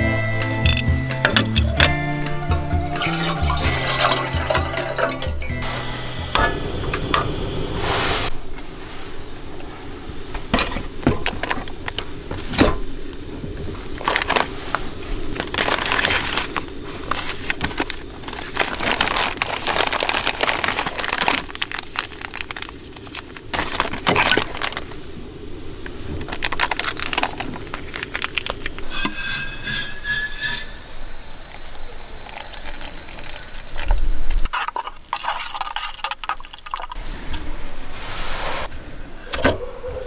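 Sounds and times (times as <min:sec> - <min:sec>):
packets crinkling and rustling: 0:13.5 - 0:25.1, 0:25.8 - 0:28.9.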